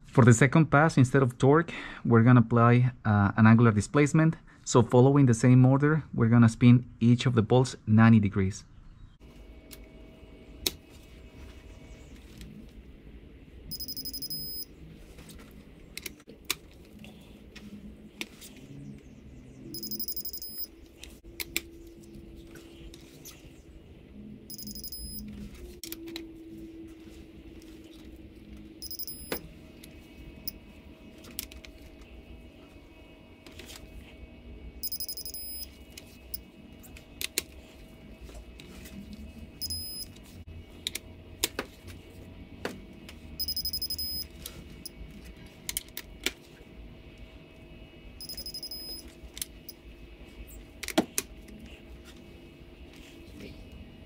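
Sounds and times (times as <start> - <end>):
short high electronic beep: 13.7 - 14.7, 19.8 - 20.7, 24.5 - 25.2, 28.8 - 29.4, 34.8 - 35.7, 48.2 - 49.0.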